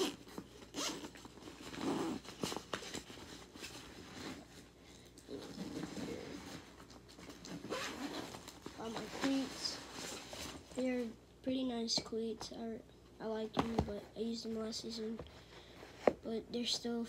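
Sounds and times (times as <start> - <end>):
rustling of fabric bag: 0.0 - 10.8.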